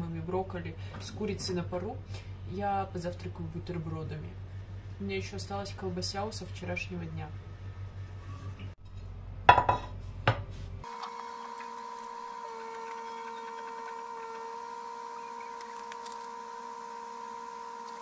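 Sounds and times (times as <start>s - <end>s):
plate knocking on countertop: 9.5s - 10.4s.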